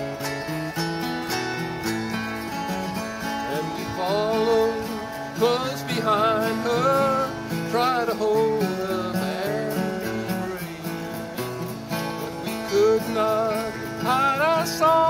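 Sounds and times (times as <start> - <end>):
autoharp wavering melody: 0.0 - 5.6
acoustic guitar strumming chords: 0.0 - 15.0.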